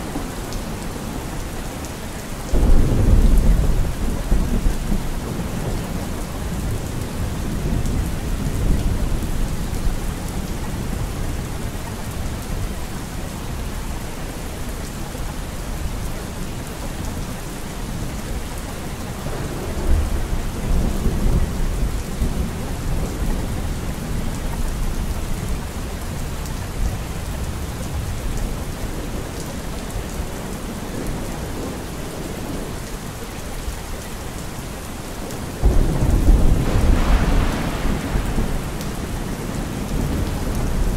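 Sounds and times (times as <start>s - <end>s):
steady rain: 0.0s - 40.9s
low rolling thunder: 2.5s - 11.8s, 35.6s - 40.9s.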